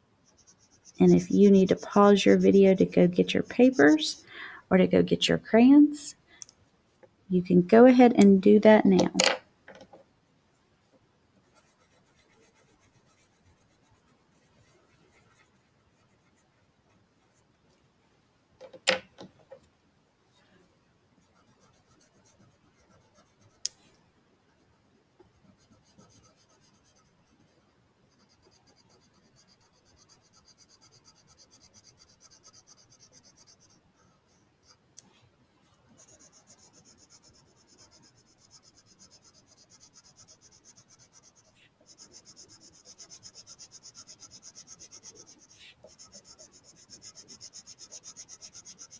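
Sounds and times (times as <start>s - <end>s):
crayon scribbling on paper: 0.2s - 4.3s, 11.5s - 17.4s, 25.5s - 34.8s, 36.0s - 48.9s.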